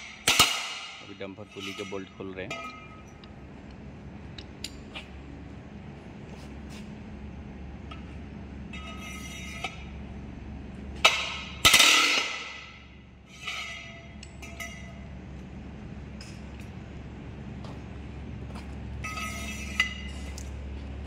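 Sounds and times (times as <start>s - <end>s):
loud metallic clanks ringing: 0.0s - 3.3s
steel tools clanking: 1.0s - 3.3s, 13.3s - 15.1s.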